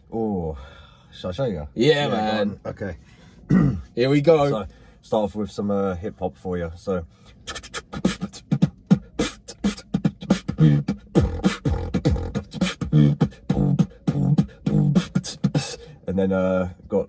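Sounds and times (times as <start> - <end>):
beatboxing: 7.3 - 15.9.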